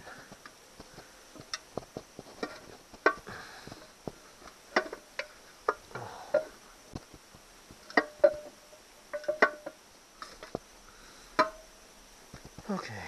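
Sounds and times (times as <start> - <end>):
metal castings clinking and knocking: 7.8 - 9.8.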